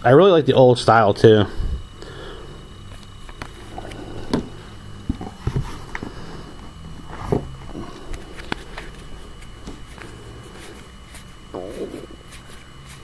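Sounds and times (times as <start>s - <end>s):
low hum: 1.1s - 13.0s
playing cards clicking and sliding: 2.9s - 13.0s.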